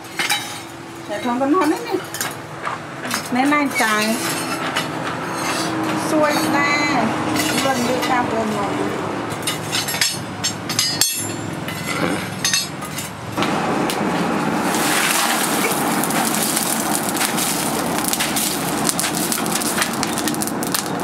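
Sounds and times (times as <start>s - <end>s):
forge fire crackling: 13.4s - 21.0s.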